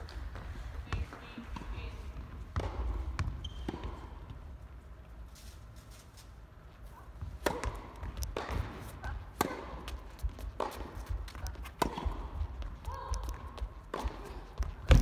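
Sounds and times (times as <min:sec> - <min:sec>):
shoe squeaks: 0:03.4 - 0:04.0
tennis ball hits: 0:07.2 - 0:12.3.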